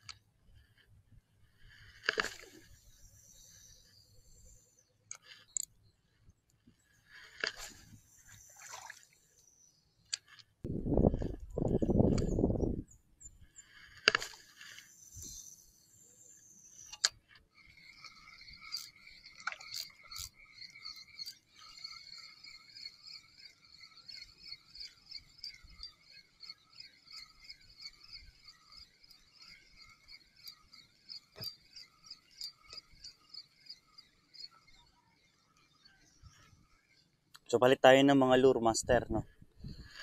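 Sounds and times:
fishing line hissing off spool: 0.0s - 6.0s, 6.7s - 37.2s, 39.2s - 40.0s
fishing reel winding whir: 0.0s - 37.4s, 39.2s - 40.0s
reel click: 1.6s - 5.7s, 7.0s - 10.5s, 16.3s - 17.4s.

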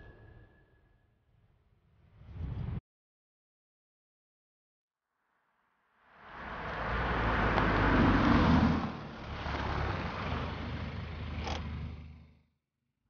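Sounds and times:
car engine running: 9.0s - 12.4s.

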